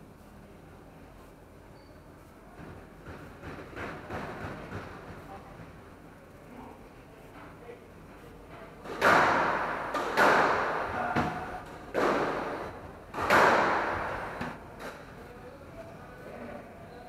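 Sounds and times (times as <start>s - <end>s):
squash ball smacks echoing: 8.9s - 14.6s.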